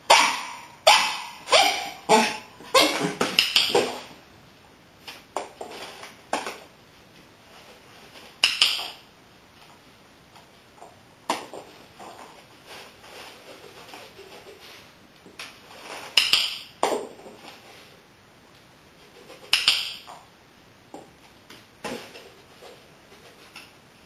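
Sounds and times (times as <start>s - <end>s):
dog yipping and barking: 0.1s - 3.8s.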